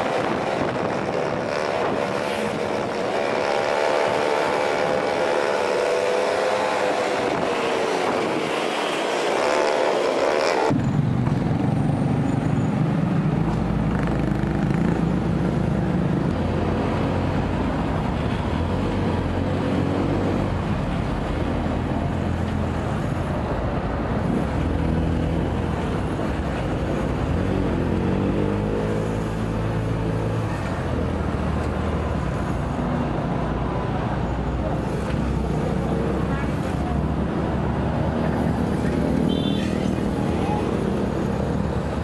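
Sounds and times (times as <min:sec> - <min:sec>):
road and wind noise: 0:00.0 - 0:42.0.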